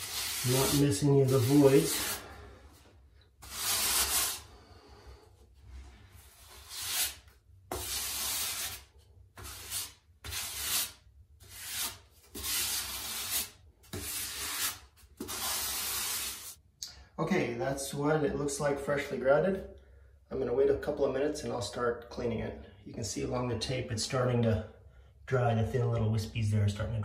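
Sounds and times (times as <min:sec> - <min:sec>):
grout scraping on pebble tiles: 0:00.0 - 0:02.2.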